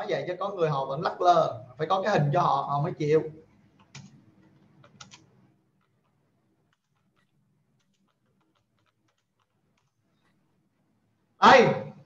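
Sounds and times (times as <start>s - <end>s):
typing on computer keyboard: 3.7s - 10.3s.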